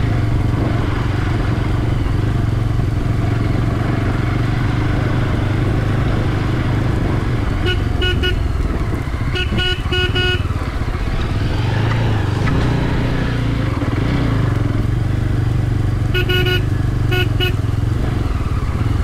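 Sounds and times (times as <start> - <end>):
motorcycle engine running: 0.0 - 19.0
horn short toots: 7.6 - 8.5, 9.3 - 10.5, 16.1 - 17.6.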